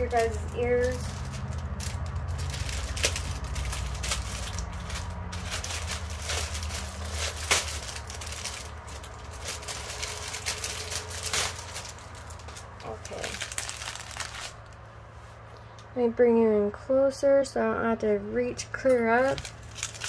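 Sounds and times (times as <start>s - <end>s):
plastic packaging crinkling: 0.0s - 14.8s, 19.2s - 20.0s.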